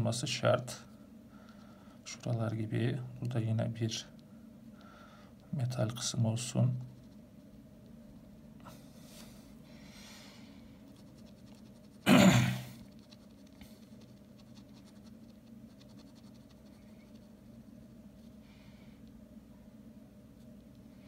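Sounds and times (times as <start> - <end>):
pen scratching on paper: 10.8 - 12.1, 12.8 - 18.4.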